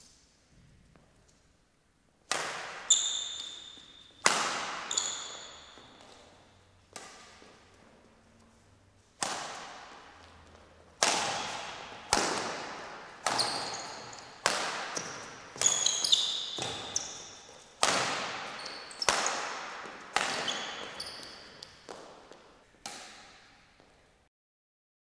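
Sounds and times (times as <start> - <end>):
racket hitting shuttlecock: 2.2 - 7.8, 8.5 - 23.9
short high squeaks: 2.9 - 4.2, 4.8 - 6.0, 13.2 - 14.4, 15.0 - 17.5, 18.5 - 19.2, 20.3 - 21.6.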